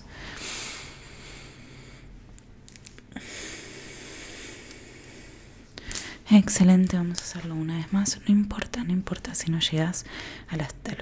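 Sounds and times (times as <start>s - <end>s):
woman inhaling slowly: 0.0s - 2.2s, 3.1s - 6.3s, 10.1s - 10.5s.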